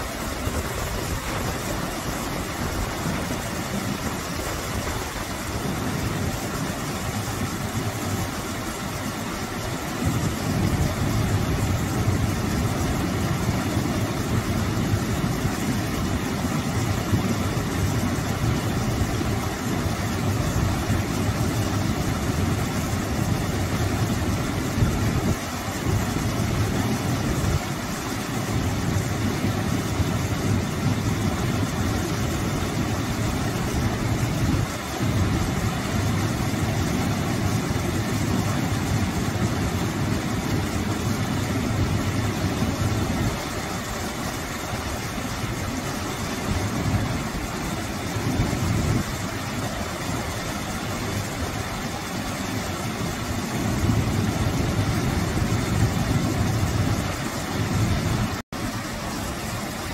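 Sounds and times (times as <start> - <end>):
small waterfall splashing: 0.0 - 59.9.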